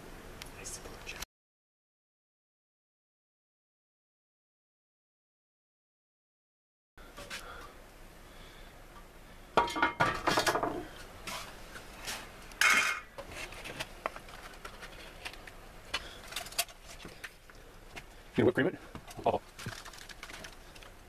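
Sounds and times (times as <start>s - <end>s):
metal lid clanking: 12.6s - 13.1s.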